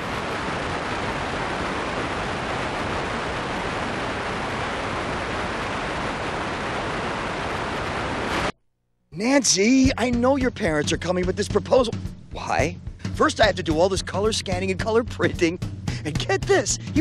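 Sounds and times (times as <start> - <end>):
tv static hiss: 0.0 - 8.6, 16.2 - 17.0.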